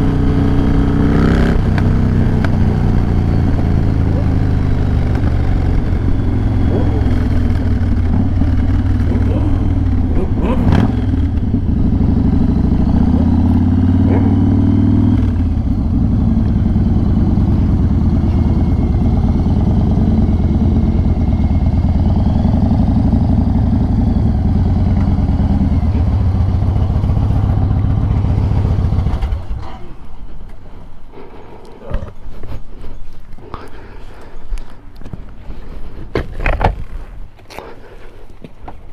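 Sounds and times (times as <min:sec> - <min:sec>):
motorcycle engine running: 0:00.0 - 0:29.6.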